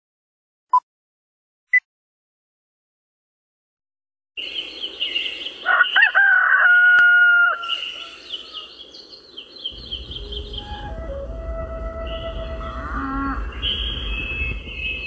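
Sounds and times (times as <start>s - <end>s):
small birds chirping: 4.4s - 6.2s, 7.6s - 11.0s, 12.0s - 15.0s
rooster crowing: 5.6s - 8.7s
low rumble: 9.8s - 15.0s.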